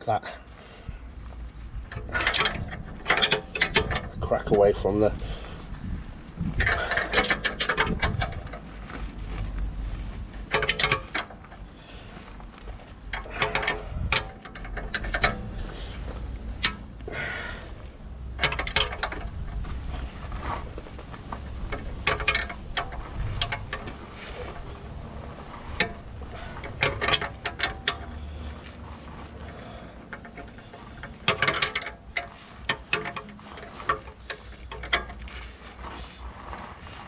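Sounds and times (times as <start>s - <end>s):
ratchet spanner clicking: 21.4s - 28.3s, 29.4s - 35.4s.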